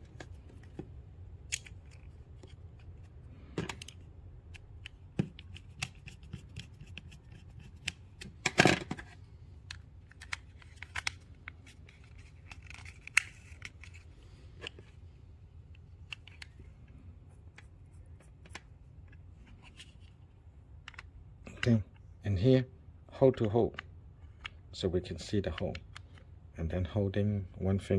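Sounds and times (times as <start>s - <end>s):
plastic parts clicking and tapping: 1.5s - 14.0s, 20.8s - 21.8s.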